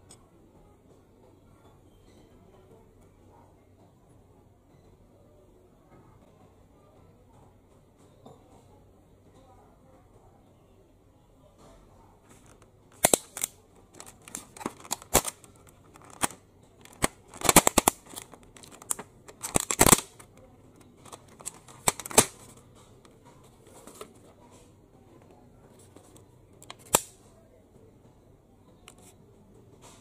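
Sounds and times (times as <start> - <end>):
plastic container crackling: 12.4 - 22.6.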